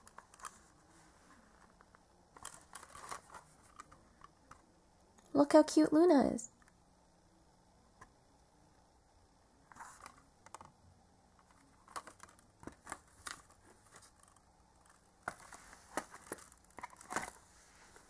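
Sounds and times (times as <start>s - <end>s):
plastic case clicks and rustles: 1.6s - 4.6s, 9.7s - 10.7s, 11.4s - 17.4s.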